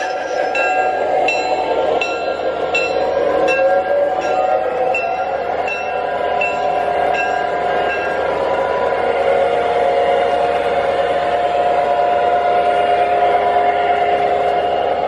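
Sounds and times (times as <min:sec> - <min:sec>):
model train running on track: 0:00.0 - 0:15.0
bell dinging: 0:00.5 - 0:08.2.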